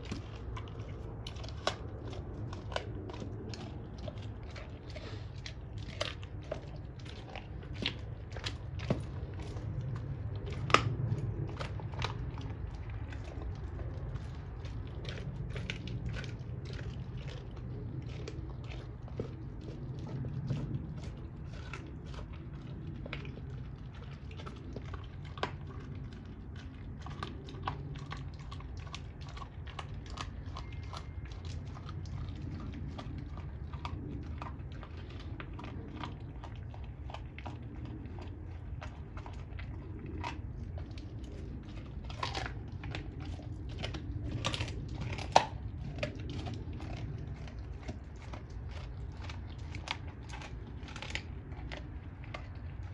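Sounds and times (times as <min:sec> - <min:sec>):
dog gnawing a bone: 0:00.0 - 0:52.9
steady low hum: 0:00.0 - 0:52.9
teeth clicking on bone: 0:00.0 - 0:52.9.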